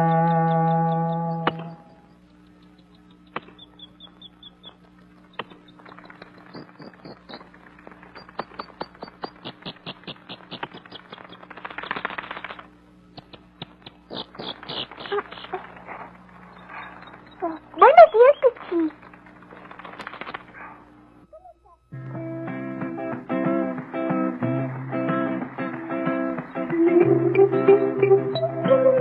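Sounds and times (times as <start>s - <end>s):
faint steady hum: 0.0s - 29.0s
sharp clicks: 1.4s - 20.6s.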